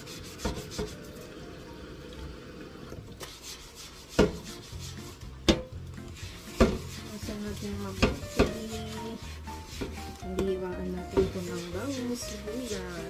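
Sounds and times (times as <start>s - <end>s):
hand scrubbing plastic cutting board: 0.0s - 1.1s, 3.2s - 13.0s.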